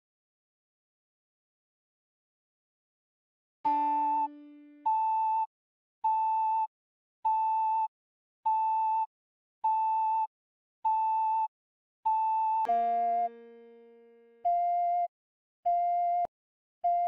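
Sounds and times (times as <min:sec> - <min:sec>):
ocarina melody: 0:03.7 - 0:05.4, 0:12.7 - 0:15.0
held chord: 0:12.7 - 0:14.4.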